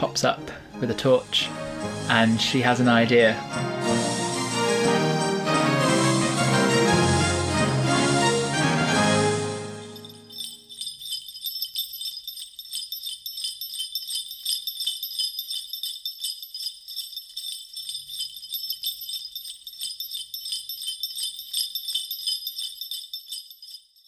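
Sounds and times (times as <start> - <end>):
background music: 0.0 - 10.2
sleigh bells shaken: 9.8 - 24.0.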